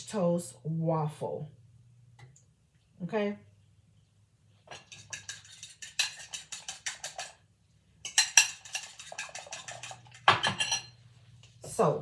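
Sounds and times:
fork clinking against glass bowl: 8.0s - 11.0s.

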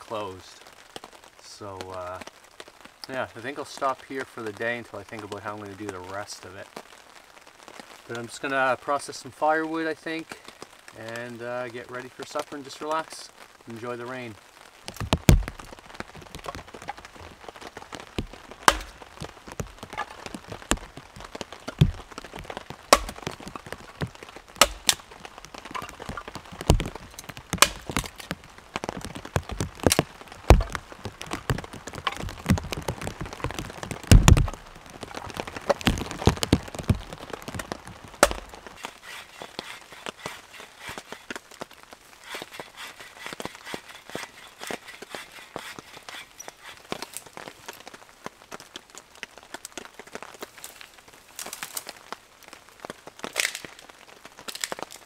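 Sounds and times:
light rain falling: 0.0s - 55.0s
axe chopping firewood: 14.9s - 15.6s, 18.1s - 21.0s, 21.6s - 25.1s, 25.7s - 28.4s, 29.5s - 30.8s, 34.1s - 34.6s, 37.0s - 41.2s.

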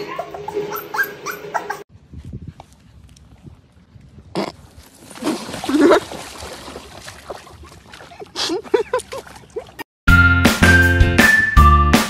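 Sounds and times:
puppy splashing in water: 5.0s - 9.8s.

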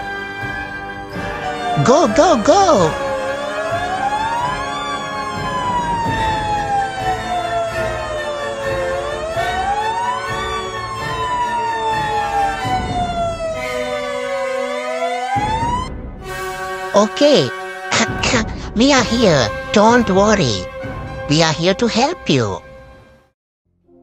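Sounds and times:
fire engine siren wailing: 0.0s - 21.7s.

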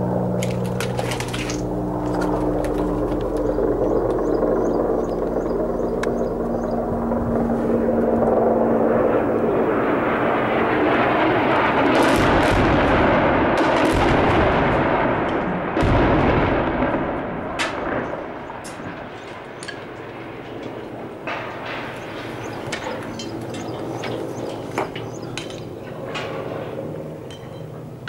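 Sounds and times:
aircraft drone: 0.0s - 28.0s
bombs exploding: 11.9s - 18.6s.

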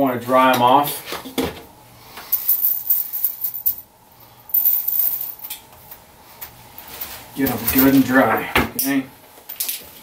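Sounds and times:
metal bullets clinking: 4.5s - 5.5s.

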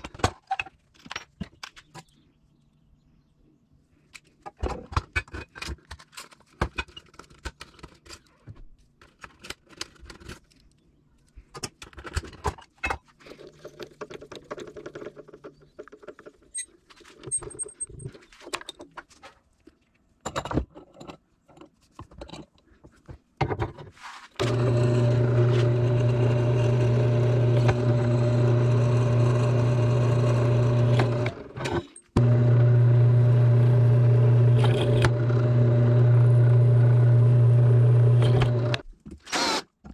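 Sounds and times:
loud machine hum: 24.4s - 38.8s.

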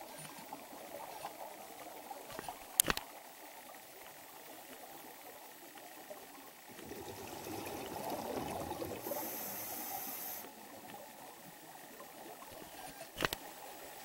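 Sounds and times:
high hiss: 9.0s - 10.5s.

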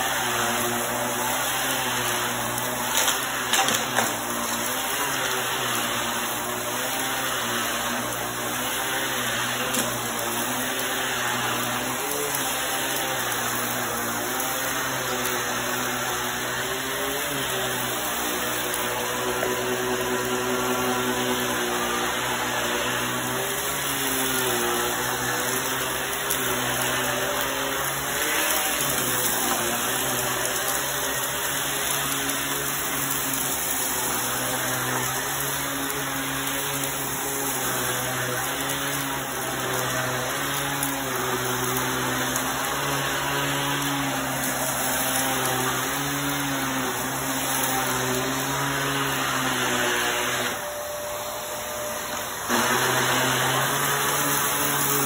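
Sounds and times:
vacuum cleaner sucking up dirt: 0.0s - 55.0s.

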